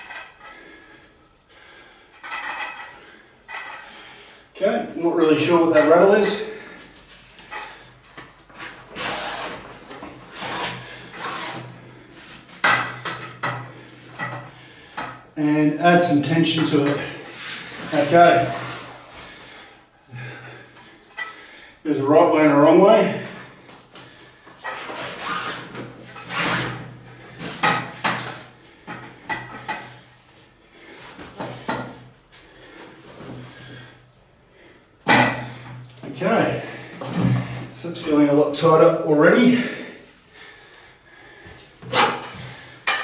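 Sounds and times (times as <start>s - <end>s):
metal and fabric rubbing: 8.6s - 12.4s, 24.6s - 27.7s.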